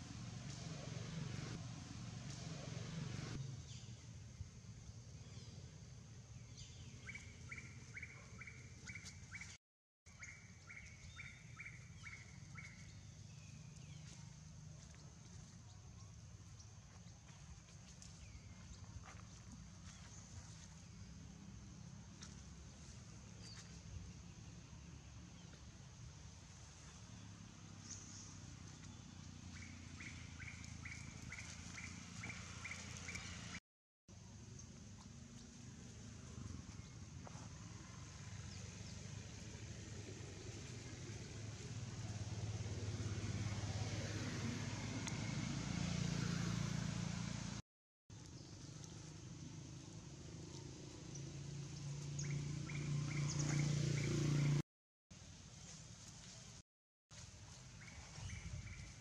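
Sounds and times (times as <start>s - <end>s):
low engine hum: 0.0s - 47.6s, 48.2s - 54.6s, 57.2s - 59.0s.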